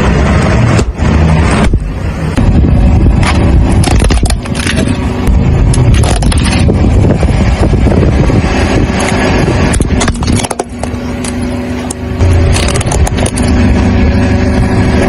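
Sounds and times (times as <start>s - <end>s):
car tyre rolling over asphalt: 0.0s - 15.0s
plastic objects cracking: 3.1s - 7.0s, 9.0s - 13.6s.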